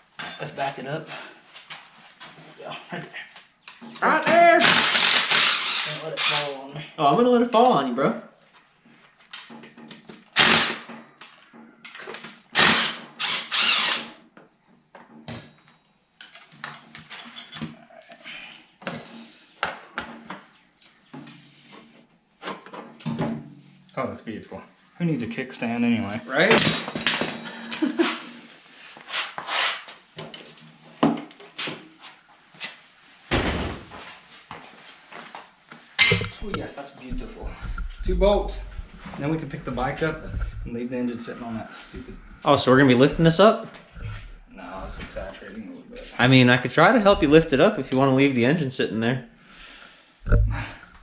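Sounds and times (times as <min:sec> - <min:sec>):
tools and parts clattering: 0:15.0 - 0:17.8, 0:26.5 - 0:27.7
metal rattling and scraping: 0:36.0 - 0:45.4
heavy thump: 0:36.1 - 0:40.7.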